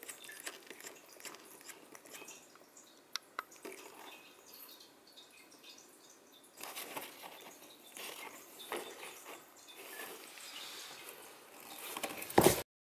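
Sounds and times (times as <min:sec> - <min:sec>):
cardboard box rustling and scraping: 0:06.6 - 0:12.6.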